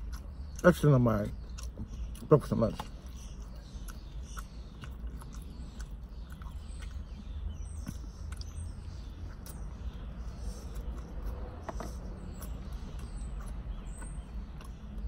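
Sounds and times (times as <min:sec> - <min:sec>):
chewing with mouth clicks: 0:00.0 - 0:15.0.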